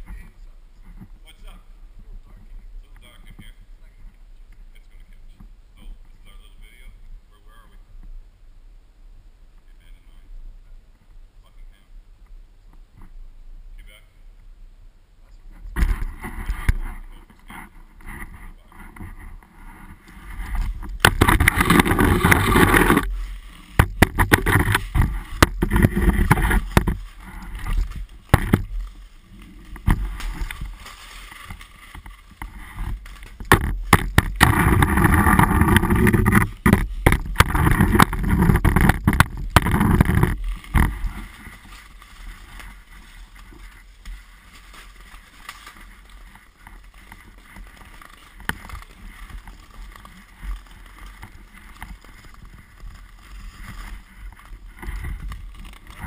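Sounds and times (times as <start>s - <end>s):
skates scraping ice: 15.8s - 56.0s
hockey stick knocking on ice: 23.8s - 27.0s.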